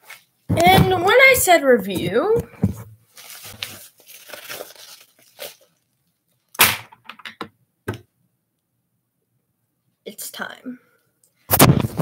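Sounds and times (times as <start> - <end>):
paper mailer crinkling: 3.1 - 5.8
sharp paper crackles: 3.1 - 5.8.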